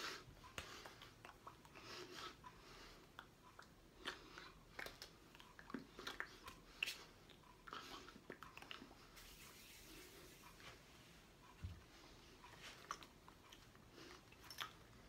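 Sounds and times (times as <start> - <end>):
lip and mouth noises: 0.4 - 9.5, 12.4 - 15.0.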